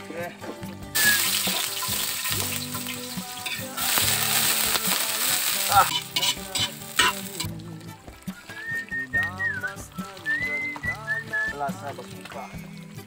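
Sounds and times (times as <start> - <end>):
garlic and onion sizzling in oil: 0.8 - 13.0.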